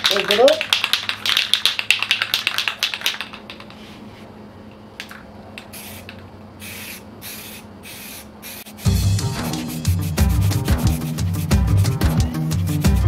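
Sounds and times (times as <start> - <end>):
spray can ball rattling: 0.0 - 3.8, 5.0 - 11.6
spray hissing: 5.6 - 11.6.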